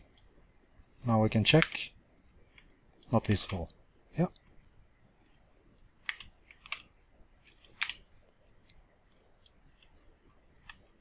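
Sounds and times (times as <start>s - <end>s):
mouse and keyboard clicks: 6.0s - 8.0s, 10.6s - 11.0s.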